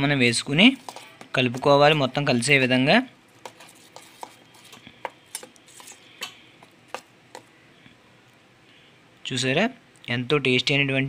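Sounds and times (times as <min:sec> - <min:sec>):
spoon stirring thick paste: 0:00.0 - 0:07.6.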